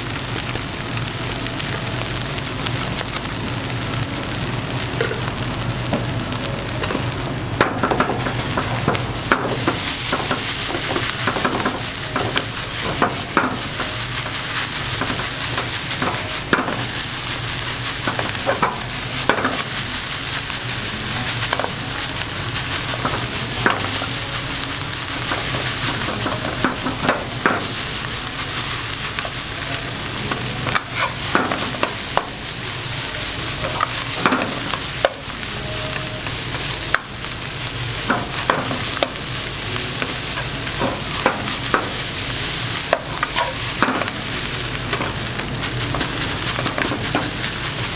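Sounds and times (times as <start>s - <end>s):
rice sizzling in a frying pan: 0.0s - 47.9s.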